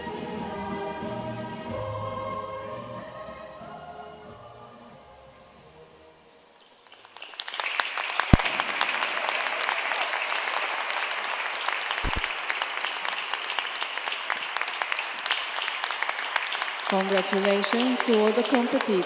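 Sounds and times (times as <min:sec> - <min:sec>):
hand-clapping applause: 0:06.8 - 0:19.0
loud sharp knock: 0:12.0 - 0:12.3.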